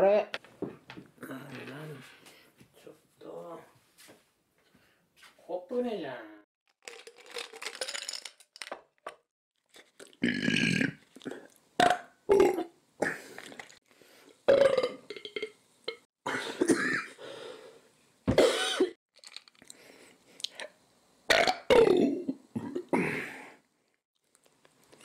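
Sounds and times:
man belching loudly: 10.2s - 11.0s, 11.8s - 12.7s, 14.5s - 15.5s.

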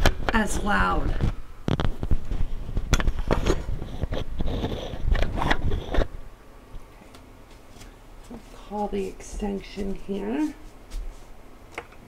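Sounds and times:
microphone handling noise: 0.0s - 6.2s.

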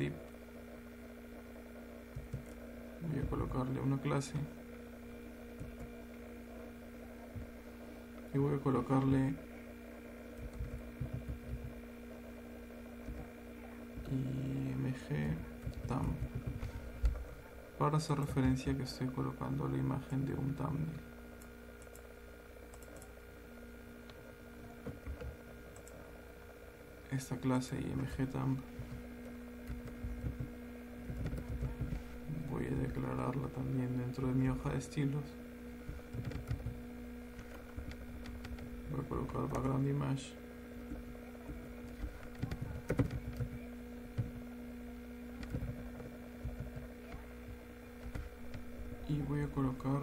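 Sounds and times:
low electrical hum: 0.0s - 50.0s
keyboard and mouse clicks: 22.7s - 23.1s, 29.6s - 32.0s, 36.1s - 38.7s, 41.8s - 44.4s, 45.4s - 47.2s.

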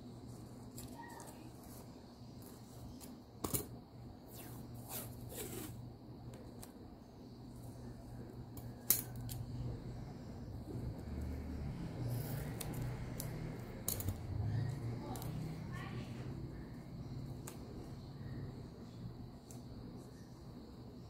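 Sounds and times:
cardboard and tape scraping: 4.3s - 5.8s.

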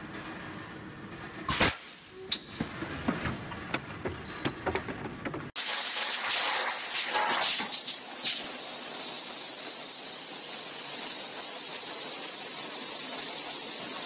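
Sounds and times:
filling machine hiss: 5.6s - 14.0s
loud hiss of air: 5.6s - 14.0s.

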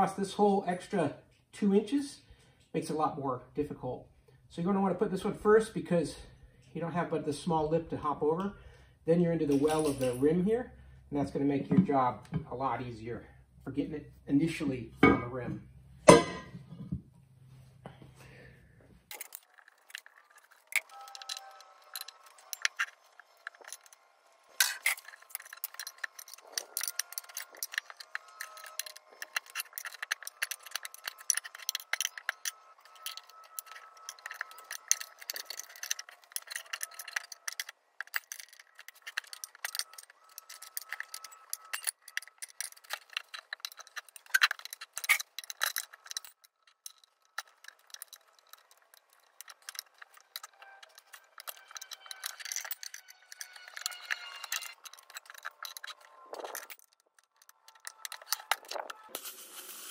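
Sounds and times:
metal tools clinking on wheel rim: 9.4s - 10.6s, 16.1s - 16.8s, 19.1s - 59.9s.

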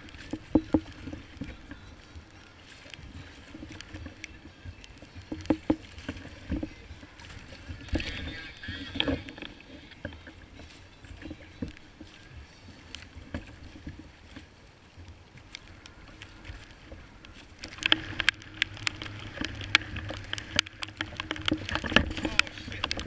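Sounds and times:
water slapping kayak hull: 0.0s - 23.0s.

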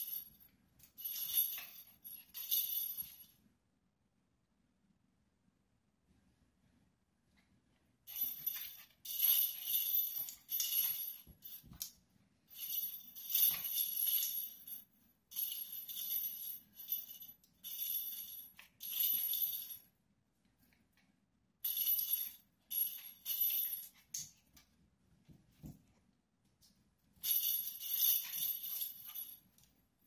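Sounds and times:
small bells jingling in toy balls: 0.0s - 3.3s, 8.1s - 11.9s, 12.5s - 19.9s, 21.6s - 24.2s, 27.2s - 29.7s.

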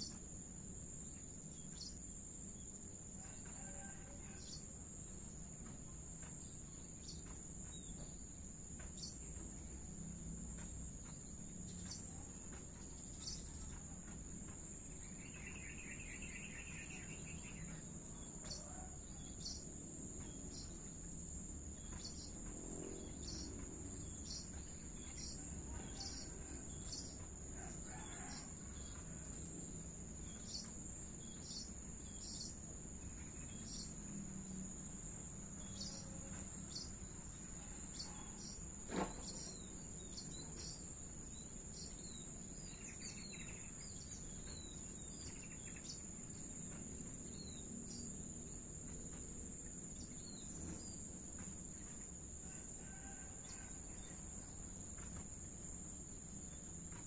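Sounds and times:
crickets trilling: 0.0s - 57.0s
small birds chirping: 6.2s - 19.6s, 21.8s - 27.3s
distant traffic hum: 19.7s - 41.2s.

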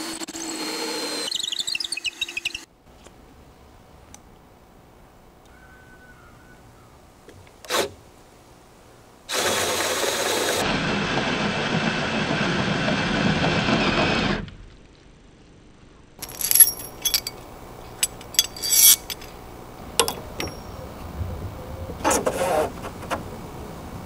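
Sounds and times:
socket wrench metallic clinks: 16.2s - 19.3s, 20.0s - 20.9s.

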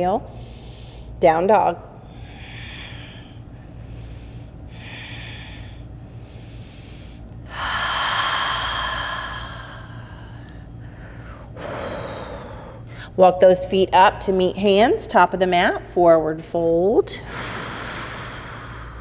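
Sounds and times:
woman breathing: 0.3s - 1.2s, 1.9s - 13.2s, 17.2s - 19.0s.

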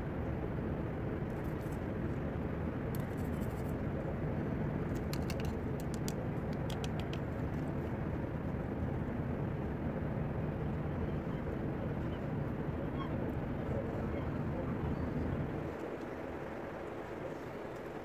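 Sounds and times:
faint sharp clicks: 4.9s - 7.2s.

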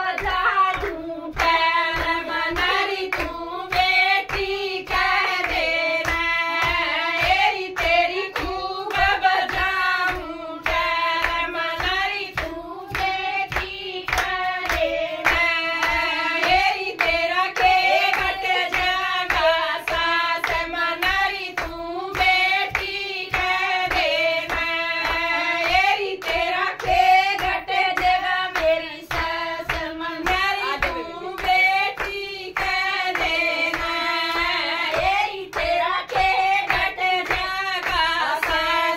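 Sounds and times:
hand clapping a steady beat: 0.0s - 38.9s
women singing devotional song: 0.0s - 38.9s.

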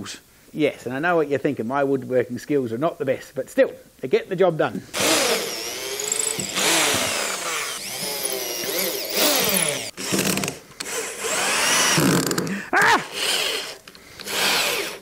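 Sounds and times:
cordless drill driving screws: 5.0s - 15.0s.

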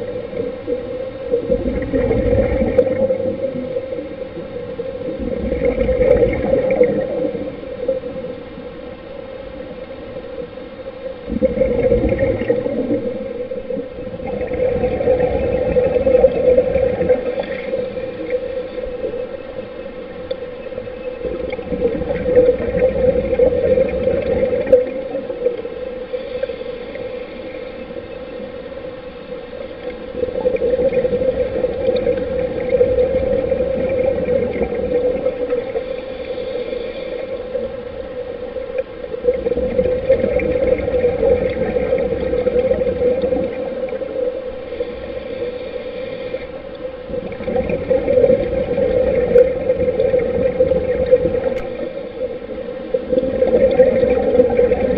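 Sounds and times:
rush of exhaled bubbles: 0.0s - 8.4s, 11.2s - 19.2s, 21.2s - 25.7s, 30.0s - 36.1s, 39.1s - 45.5s, 47.1s - 54.9s
steady hum: 0.0s - 54.9s
diver's regulator breathing: 25.6s - 28.8s, 31.1s - 38.6s, 40.8s - 52.7s.

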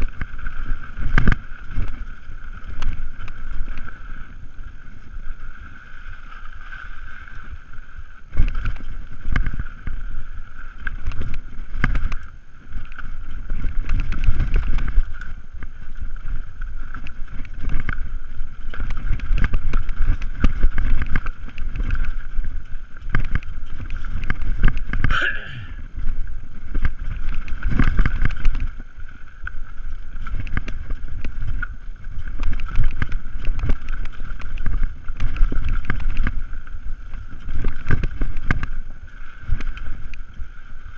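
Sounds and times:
bike rattling over bumps: 8.3s - 40.1s.

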